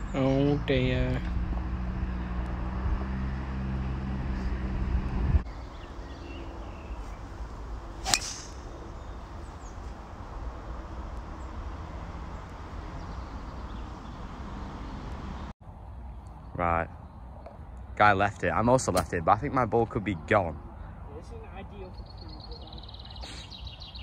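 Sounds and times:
golf club striking ball: 0:08.0 - 0:09.2.

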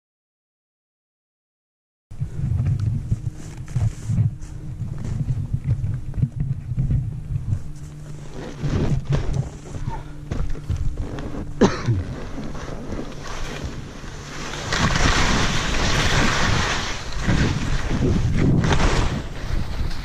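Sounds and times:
wind buffeting microphone: 0:02.1 - 0:20.0
skis hissing through snow: 0:12.1 - 0:20.0.

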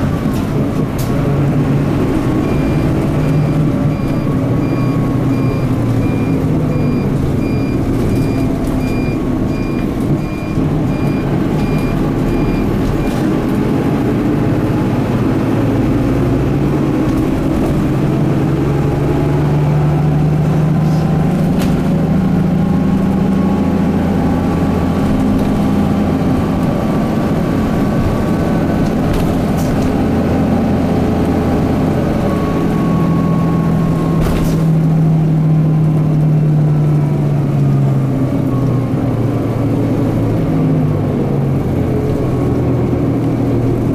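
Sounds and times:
bus diesel engine running: 0:00.0 - 0:43.9
electronic beeping: 0:02.4 - 0:13.1.

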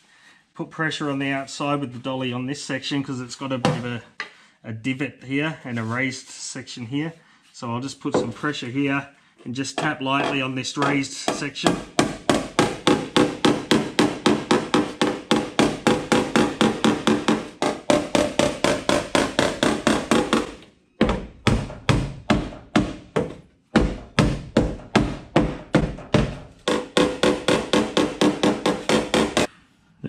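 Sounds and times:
hammer tapping on steel panel: 0:09.8 - 0:29.5.

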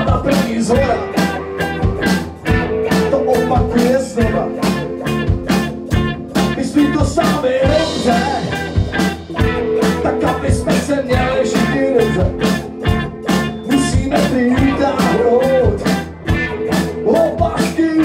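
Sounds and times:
bass guitar: 0:00.0 - 0:18.0
drum kit beat: 0:00.0 - 0:18.0
electric guitars: 0:00.0 - 0:18.0.

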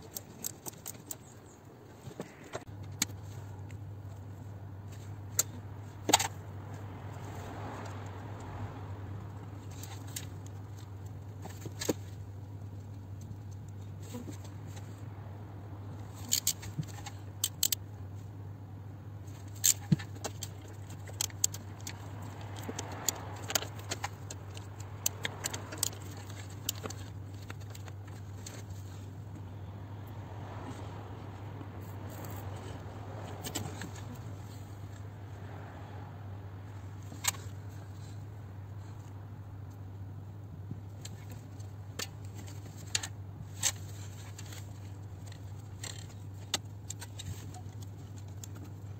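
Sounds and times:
steady low hum: 0:00.0 - 0:48.9
ratchet metallic clicks: 0:16.1 - 0:17.8.

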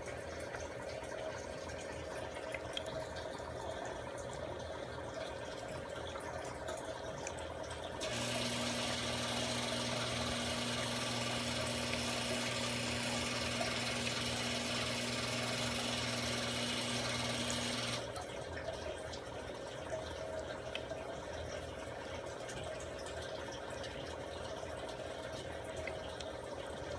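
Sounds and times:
aquarium water trickling: 0:00.0 - 0:26.9
small electric motor humming: 0:08.0 - 0:18.0.

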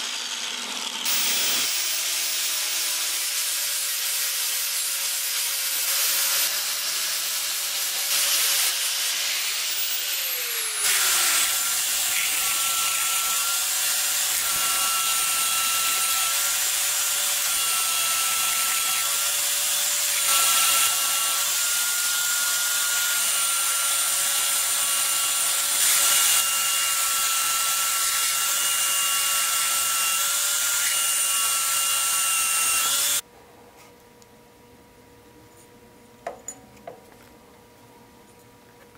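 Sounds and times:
belt sander whine: 0:00.0 - 0:01.9, 0:09.4 - 0:19.1.

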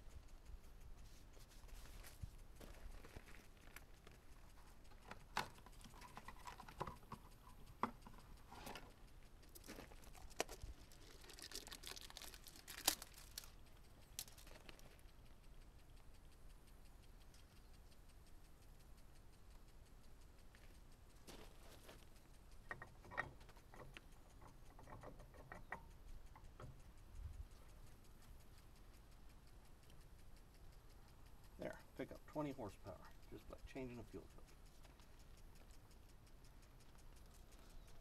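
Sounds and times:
faint fast ticking: 0:00.0 - 0:38.0
tools clicking and knocking: 0:02.0 - 0:15.1, 0:20.6 - 0:27.0.

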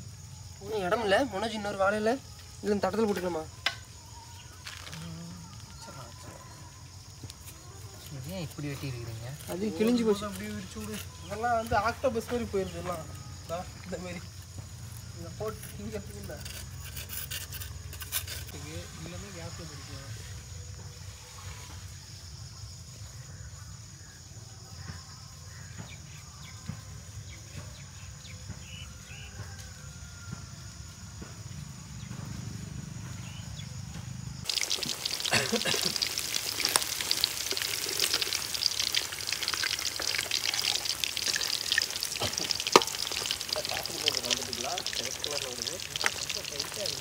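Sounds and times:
deep-frying crackling sizzle: 0:34.4 - 0:47.0.

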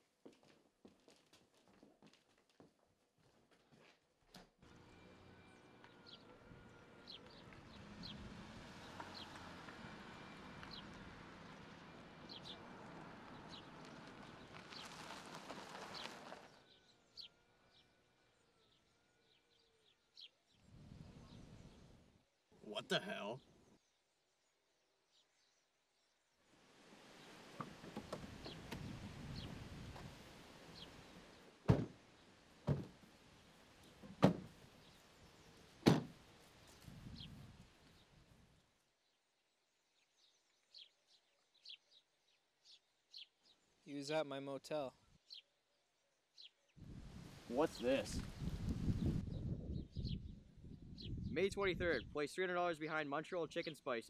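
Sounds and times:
background noise: 0:00.0 - 0:54.0
faint birds chirping: 0:04.6 - 0:54.0
car doors slamming: 0:31.6 - 0:32.0, 0:32.6 - 0:33.0, 0:34.1 - 0:34.5, 0:35.8 - 0:36.2.

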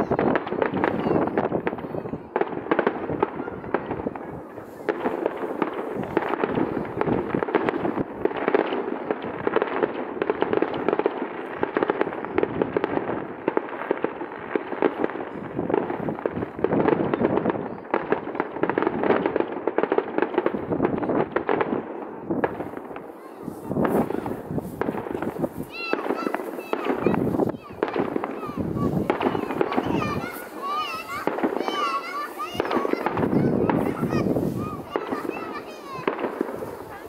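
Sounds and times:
fireworks bangs and crackles: 0:00.0 - 0:37.0.

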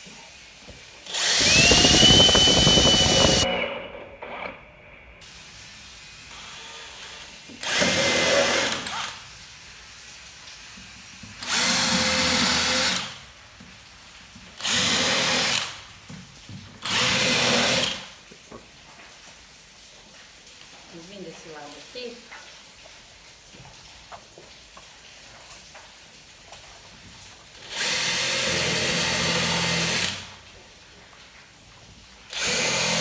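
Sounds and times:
drill boring into wood: 0:01.0 - 0:03.5, 0:06.3 - 0:09.2, 0:11.4 - 0:13.2, 0:14.6 - 0:15.8, 0:16.8 - 0:18.0, 0:27.6 - 0:30.3, 0:32.3 - 0:33.0.

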